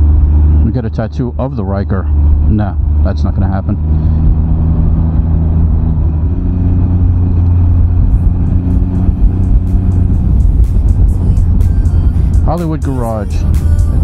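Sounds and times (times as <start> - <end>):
motorcycle engine running: 0.0 - 14.0
wind rumble: 1.3 - 14.0.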